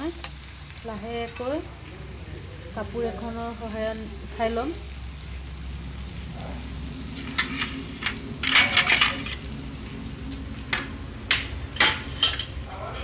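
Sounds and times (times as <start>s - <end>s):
low steady hum: 0.0s - 13.0s
steel utensils clanking and scraping: 7.2s - 9.6s, 10.7s - 13.0s.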